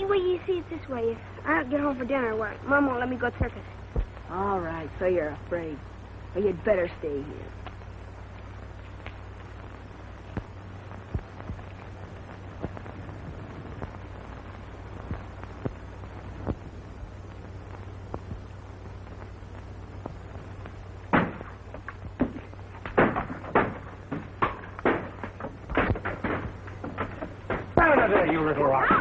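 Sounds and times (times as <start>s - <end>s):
old film soundtrack hum and hiss: 0.0s - 29.0s
stones knocking against a house: 21.1s - 29.0s.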